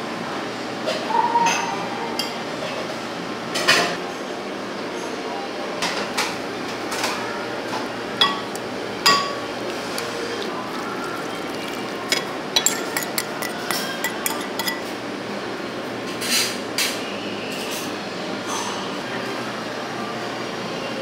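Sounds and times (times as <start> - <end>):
steady background noise: 0.0 - 21.0
utensils clinking on ceramic bowls: 8.2 - 14.9.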